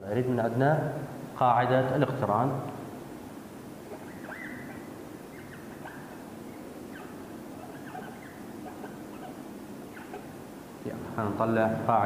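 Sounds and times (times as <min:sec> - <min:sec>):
marker squeaking on whiteboard: 0:03.8 - 0:10.4.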